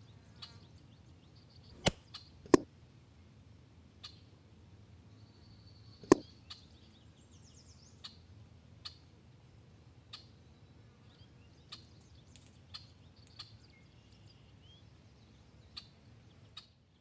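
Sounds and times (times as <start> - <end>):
pellet strike ticks: 1.8 - 2.7, 6.0 - 6.2
air rifle shot cracks: 6.0 - 6.3.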